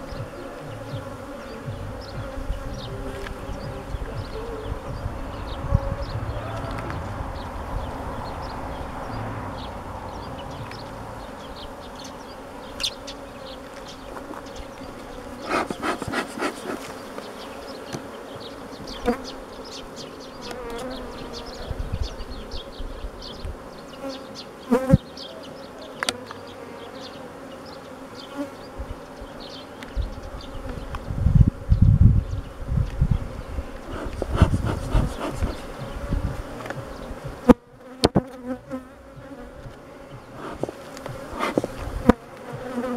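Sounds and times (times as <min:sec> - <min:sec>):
bees buzzing: 0:00.0 - 0:42.9
low rumble: 0:02.8 - 0:11.9
wooden knocks and scrapes: 0:40.4 - 0:42.1.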